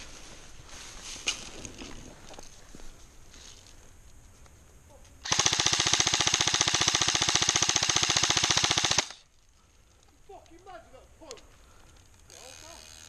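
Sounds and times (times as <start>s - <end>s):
airsoft gun full-auto burst: 5.2s - 9.2s.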